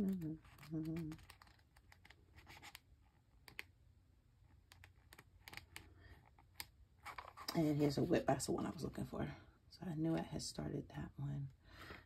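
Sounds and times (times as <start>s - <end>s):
paper pages rustling: 0.2s - 2.9s.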